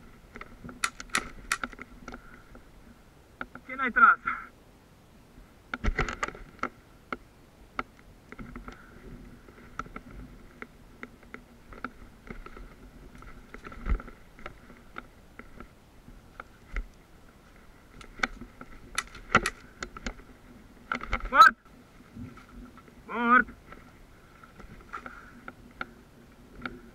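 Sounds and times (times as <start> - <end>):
sharp clicks and knocks: 0.3 - 2.2, 18.0 - 20.2.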